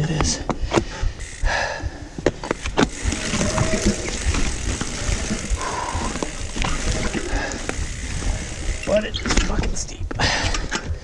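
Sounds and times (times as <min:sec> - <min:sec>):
bike tyres rumbling on dirt: 0:00.0 - 0:10.7
bike rattling and clicking: 0:00.0 - 0:11.0
brakes squealing: 0:02.4 - 0:09.5.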